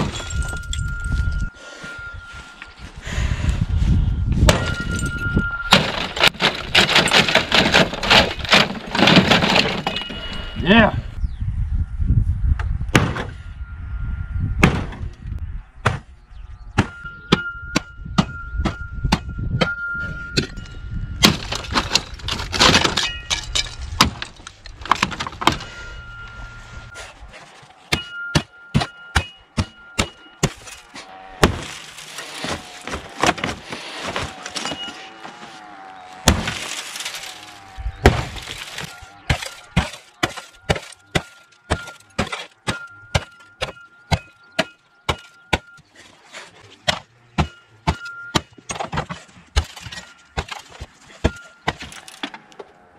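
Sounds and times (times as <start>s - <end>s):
glass cracking and crunching: 5.7s - 10.2s, 21.2s - 25.5s, 30.0s - 45.7s, 49.5s - 52.8s.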